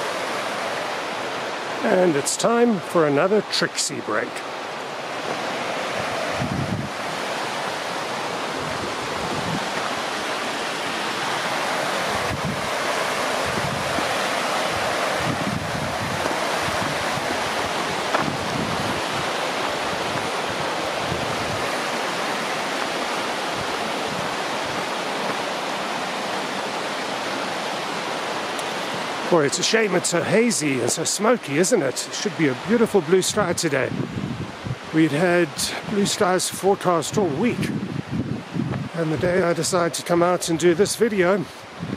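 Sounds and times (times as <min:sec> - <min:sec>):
river rushing: 0:00.0 - 0:41.9
wind buffeting microphone: 0:05.0 - 0:29.3, 0:33.4 - 0:35.0, 0:37.2 - 0:39.4, 0:41.7 - 0:41.9.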